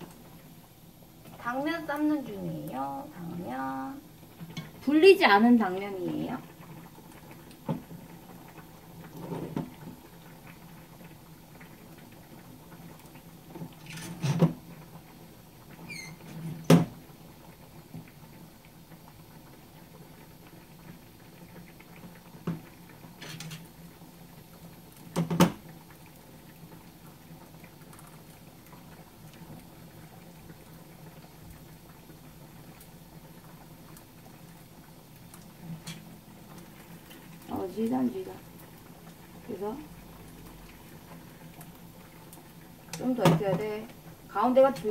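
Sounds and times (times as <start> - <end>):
frying pan knocking on stove grate: 43.2 - 43.7.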